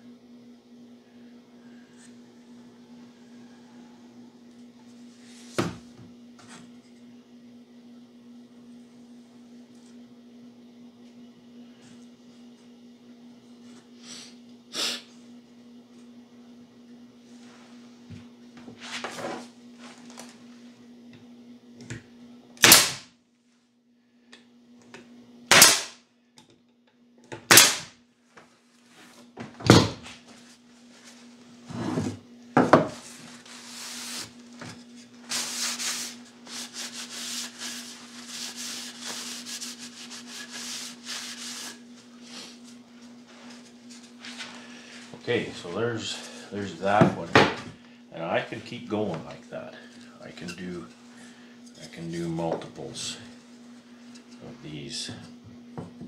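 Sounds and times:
pneumatic stapler firing: 22.6s - 23.1s, 25.5s - 26.0s, 27.5s - 27.9s
paper towel wiping wood: 33.0s - 34.4s, 35.2s - 45.0s.

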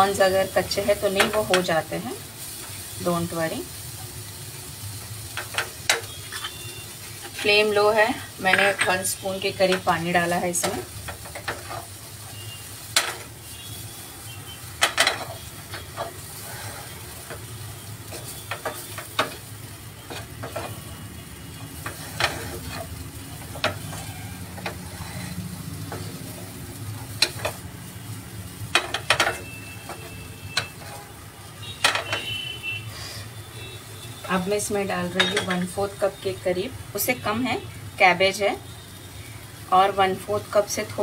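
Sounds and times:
low sizzle in pan: 0.0s - 41.0s
spatula stirring and scraping: 5.4s - 7.7s, 10.6s - 13.7s, 14.4s - 28.0s, 28.7s - 31.2s.

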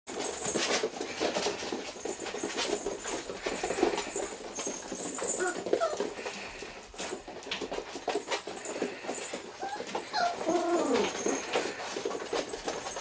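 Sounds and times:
puppy claws clicking on floor: 0.1s - 13.0s
squeaky puppy noises: 3.4s - 6.8s, 8.8s - 11.9s.

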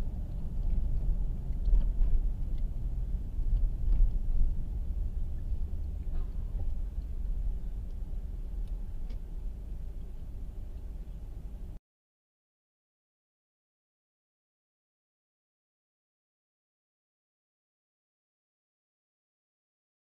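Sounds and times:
car cabin road and engine rumble: 0.0s - 11.8s.

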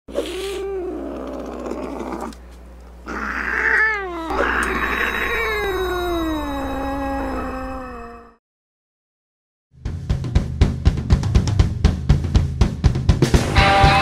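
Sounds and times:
cat yowling: 3.1s - 8.4s.

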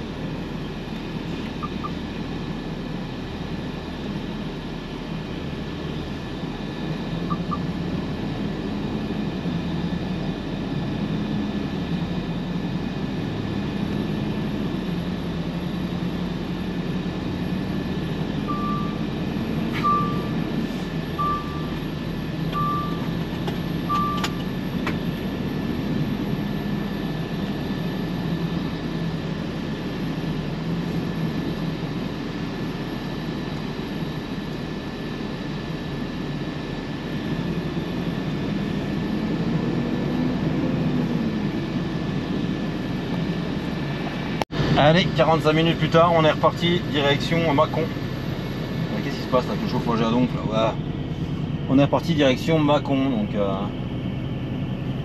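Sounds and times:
truck engine and road noise: 0.0s - 55.0s
short beeps: 7.3s - 7.7s, 18.4s - 19.0s, 19.8s - 20.4s, 21.2s - 21.8s, 22.5s - 23.1s, 23.9s - 24.4s.

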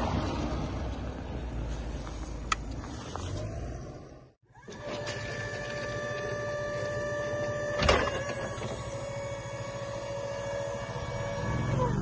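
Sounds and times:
hydraulic pump motor whining: 4.4s - 12.0s
forklift clunk: 4.6s - 9.1s.

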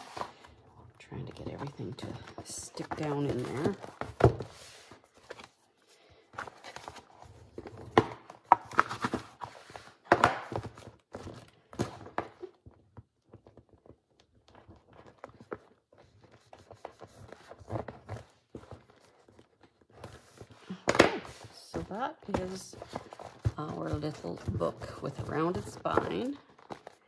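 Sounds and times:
book scraping and knocking on table: 1.3s - 5.5s, 20.2s - 26.3s.

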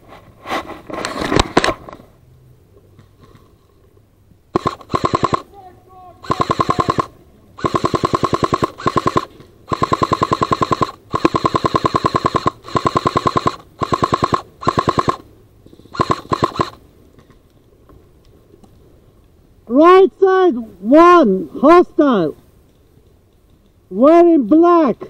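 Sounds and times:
airsoft gun firing bursts: 4.5s - 5.5s, 6.2s - 15.2s, 15.9s - 16.8s.

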